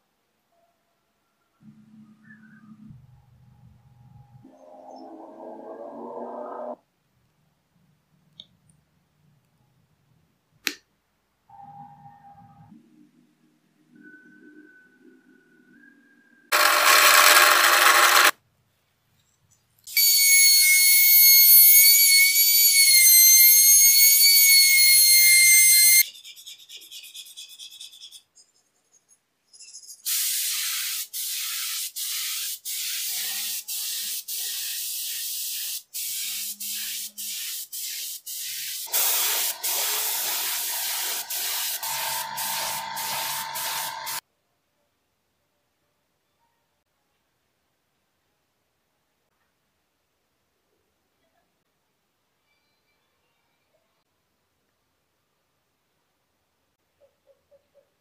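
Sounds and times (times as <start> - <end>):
hiss: 30.1 - 44.2.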